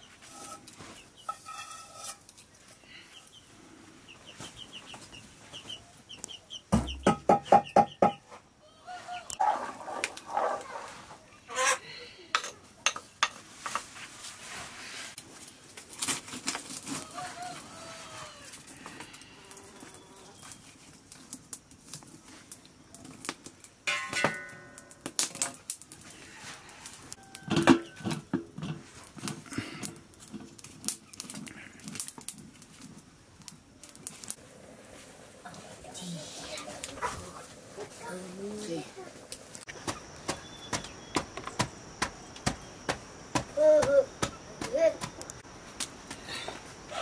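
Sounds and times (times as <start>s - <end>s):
metal ladle and pot clattering: 0.3s - 2.3s, 23.9s - 25.6s
background voices: 34.5s - 39.5s.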